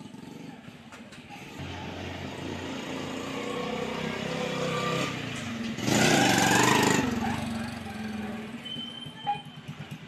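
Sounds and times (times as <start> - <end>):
motorcycle engine running: 5.8 - 10.0.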